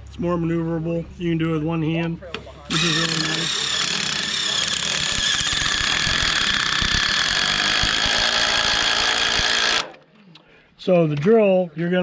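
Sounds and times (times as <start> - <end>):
drill motor whining: 2.7 - 10.0.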